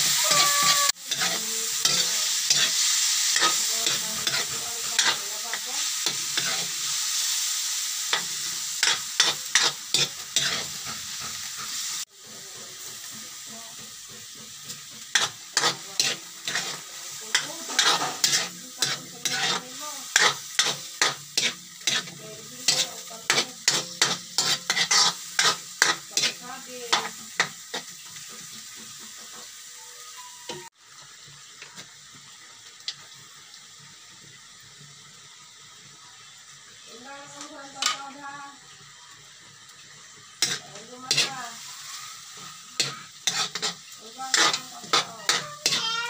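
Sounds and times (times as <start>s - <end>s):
metal ladle scraping a wok: 0.0s - 7.4s, 8.0s - 12.9s, 14.2s - 28.4s, 40.4s - 41.4s, 42.4s - 45.8s
meat sizzling in hot oil: 0.0s - 46.0s.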